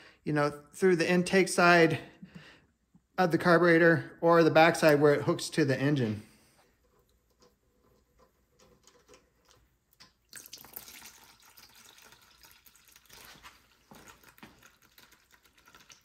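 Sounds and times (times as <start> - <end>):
faint running liquid: 6.9 - 16.0.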